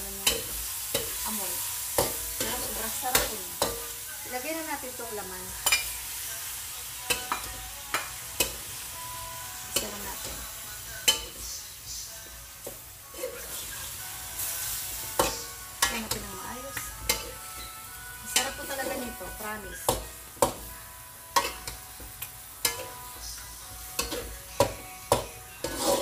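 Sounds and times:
meat frying sizzle: 0:00.0 - 0:26.0
metal spatula clacking on wok: 0:02.0 - 0:03.9, 0:16.8 - 0:17.7, 0:21.4 - 0:23.0, 0:24.0 - 0:26.0.

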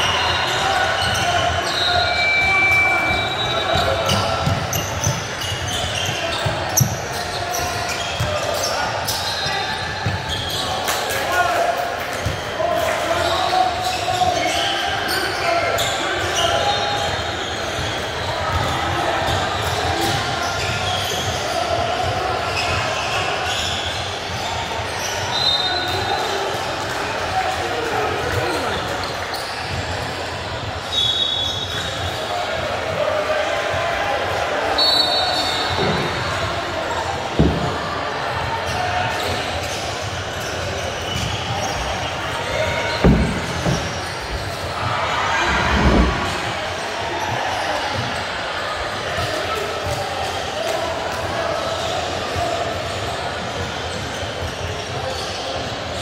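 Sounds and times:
many voices chattering: 0:00.0 - 0:56.0
sneakers squeaking on hardwood: 0:00.5 - 0:10.8, 0:38.7 - 0:48.3
basketballs bouncing: 0:03.7 - 0:08.5, 0:40.4 - 0:44.9
basketballs bouncing on hardwood: 0:42.9 - 0:44.4.

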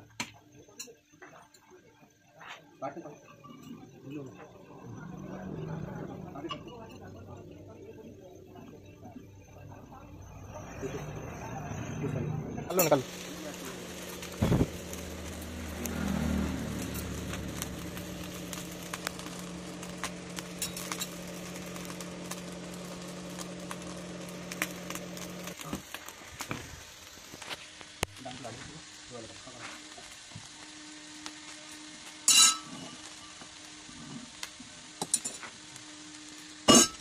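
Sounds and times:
forge fire crackling: 0:02.8 - 0:37.0
air blower humming: 0:12.7 - 0:27.7
tongs clinking on iron: 0:20.6 - 0:21.4, 0:32.3 - 0:32.9.

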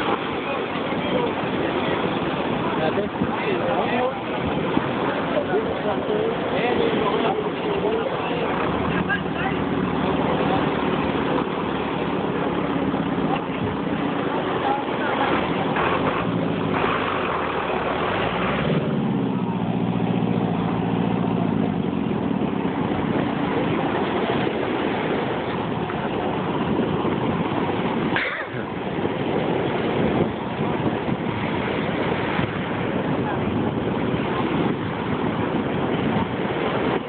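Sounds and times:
engine running: 0:00.0 - 0:37.0
surf: 0:00.0 - 0:37.0
wind: 0:00.0 - 0:37.0.

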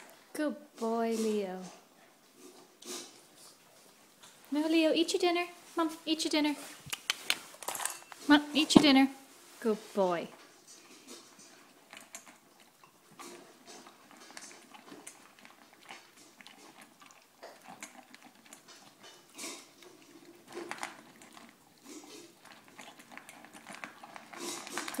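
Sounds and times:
dog crunching dry kibble: 0:10.6 - 0:25.0.

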